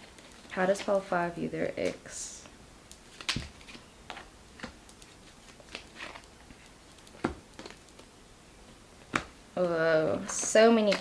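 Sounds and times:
cards being shuffled: 3.1s - 8.1s.

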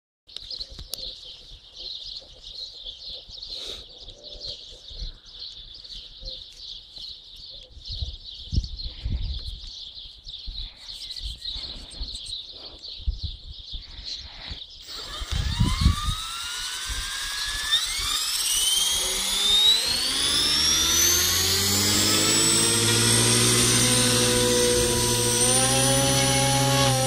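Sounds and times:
wind rumbling on microphone: 7.7s - 16.3s
high-pitched chirping: 14.2s - 27.0s.

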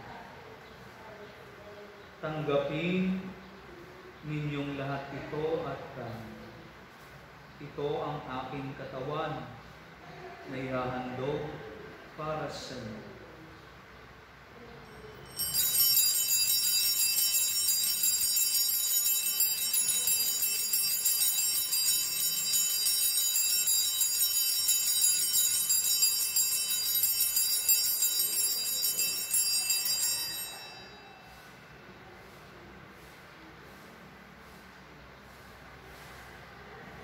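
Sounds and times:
altar bells jingling: 14.9s - 31.5s.

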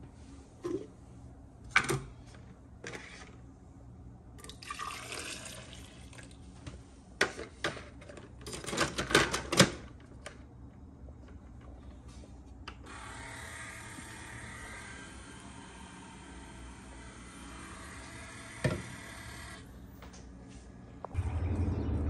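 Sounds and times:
coffee pouring into mug: 4.4s - 6.4s.

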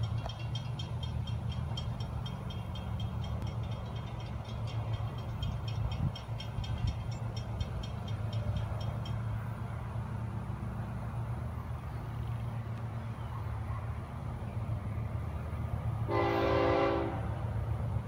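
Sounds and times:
crossing warning bell ringing: 0.0s - 10.1s
diesel locomotive rumble: 0.0s - 18.0s.

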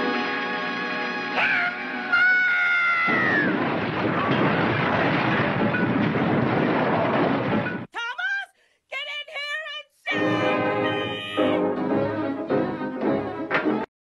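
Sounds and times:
dense steady rumbling: 3.5s - 7.9s.

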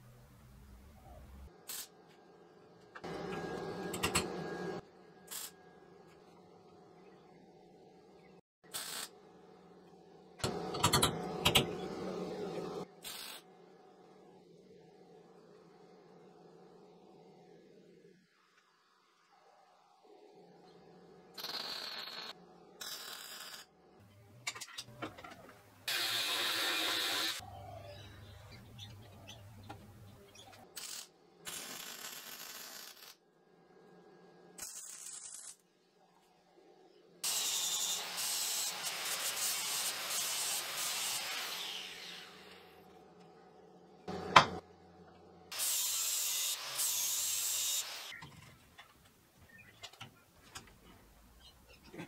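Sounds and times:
crackling hissing welding: 1.6s - 2.0s, 5.3s - 5.6s, 8.7s - 9.2s, 12.8s - 13.5s, 34.6s - 35.6s, 37.2s - 42.8s, 45.5s - 48.2s.

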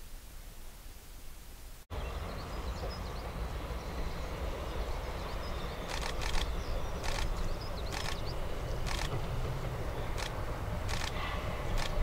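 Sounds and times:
small birds chirping: 1.9s - 9.3s
distant steam locomotive rumbling: 1.9s - 12.0s.

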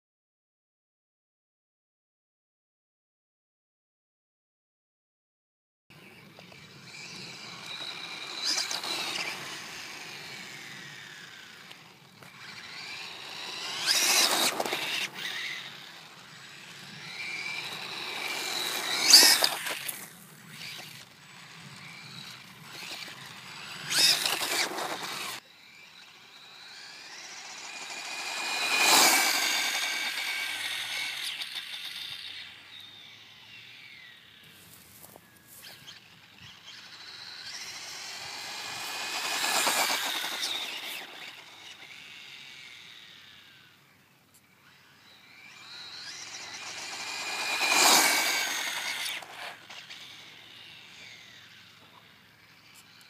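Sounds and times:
rc car motor whining: 6.0s - 53.0s
tyre noise on asphalt: 6.5s - 25.4s, 26.3s - 32.5s, 36.6s - 42.6s, 45.5s - 50.9s.

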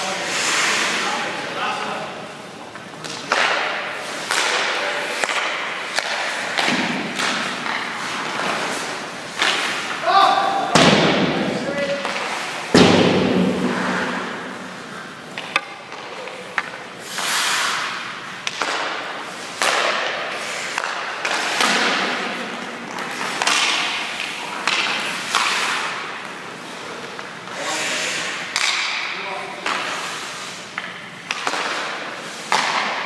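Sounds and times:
skate blades scraping ice: 0.0s - 1.5s, 3.3s - 10.2s, 12.0s - 12.7s, 16.0s - 28.7s, 29.6s - 33.0s.

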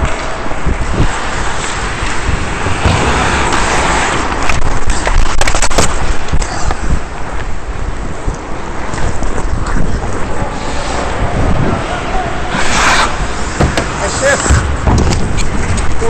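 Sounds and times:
skate blades scraping ice: 0.0s - 7.1s, 12.0s - 16.0s
wind noise: 0.0s - 16.0s
sharp clattering knocks: 13.6s - 16.0s.

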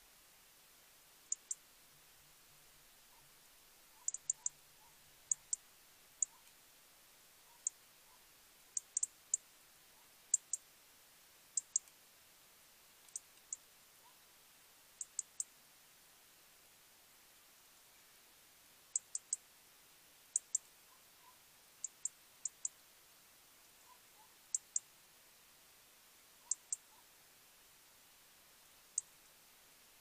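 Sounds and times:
faint steady hiss: 0.0s - 30.0s
robin tic calls: 1.3s - 1.6s, 3.0s - 6.6s, 7.4s - 10.6s, 11.5s - 11.9s, 13.0s - 14.3s, 15.0s - 15.5s, 18.9s - 19.4s, 20.3s - 22.8s, 23.8s - 24.9s, 26.4s - 27.2s, 28.8s - 29.2s.

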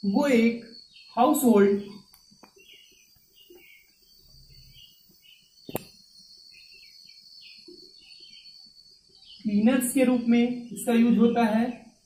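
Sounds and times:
sharp click: 5.7s - 6.0s.

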